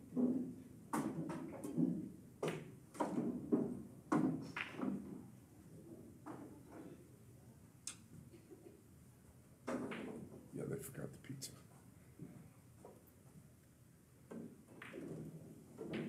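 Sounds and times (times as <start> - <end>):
pool balls clacking: 0.1 - 5.4, 9.6 - 10.5, 14.2 - 16.0.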